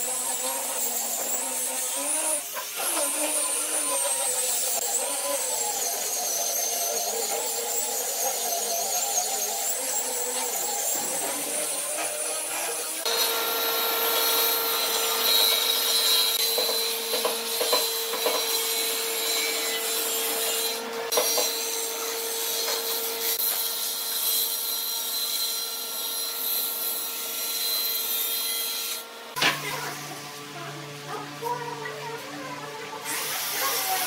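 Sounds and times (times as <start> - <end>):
rasping wood cutting: 0.0 - 29.0
woodworking machine motor hum: 11.2 - 23.4.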